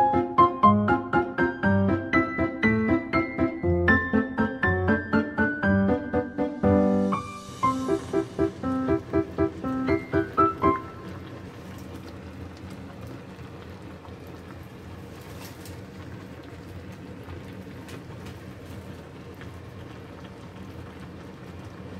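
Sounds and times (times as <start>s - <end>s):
broth bubbling with small pops: 10.0s - 21.9s.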